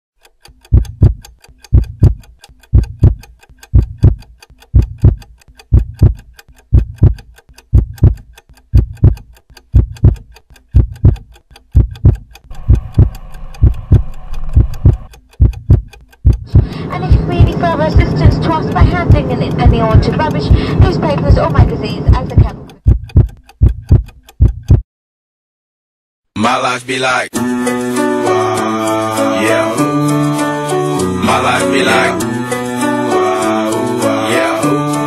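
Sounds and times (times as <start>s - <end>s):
deep double thump with click: 22.9s - 24.8s.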